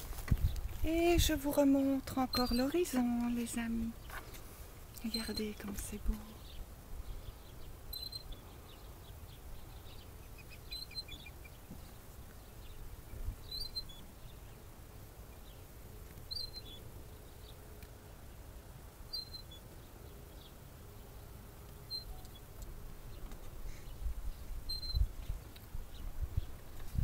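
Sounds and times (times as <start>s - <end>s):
low wind rumble: 0.0s - 19.1s, 22.4s - 27.0s
swing squeaking: 2.2s - 3.0s, 5.0s - 5.7s, 7.9s - 8.4s, 10.0s - 11.7s, 13.4s - 14.2s, 16.2s - 16.9s, 19.1s - 19.7s, 21.8s - 22.5s, 24.6s - 25.2s
small chirps: 2.3s - 2.8s, 5.0s - 6.6s, 7.2s - 8.5s, 9.6s - 12.4s, 13.1s - 14.1s, 16.1s - 16.8s, 19.1s - 19.6s, 21.8s - 24.0s, 24.6s - 25.7s.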